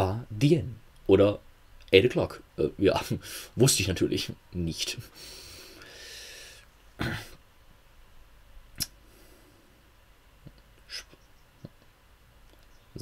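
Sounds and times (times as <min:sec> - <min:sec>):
brief breath: 0:05.2 - 0:06.7
throat noise: 0:07.0 - 0:07.4
mouth click: 0:08.7 - 0:09.0, 0:10.4 - 0:11.9.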